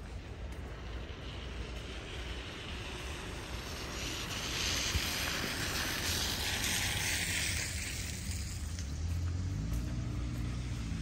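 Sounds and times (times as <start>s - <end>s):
low vehicle rumble: 0.0s - 11.0s
tyre hiss on wet road: 0.0s - 11.0s.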